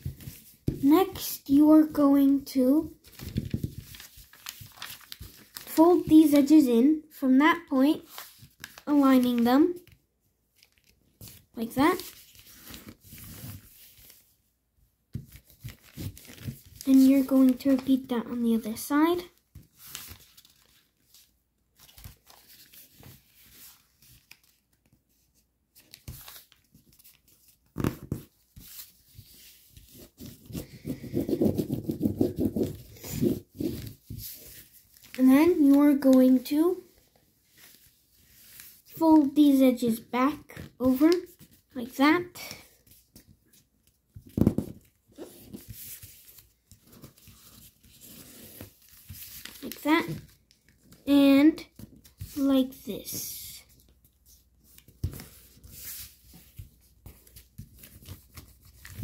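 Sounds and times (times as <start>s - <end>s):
paper rustling and creasing: 0.0s - 6.7s, 7.8s - 14.4s, 15.1s - 59.0s
foil paper crinkling: 3.0s - 5.8s
paper crinkle: 3.0s - 6.1s, 8.0s - 14.3s, 15.2s - 18.7s, 19.5s - 36.4s, 42.8s - 51.0s, 53.7s - 59.0s.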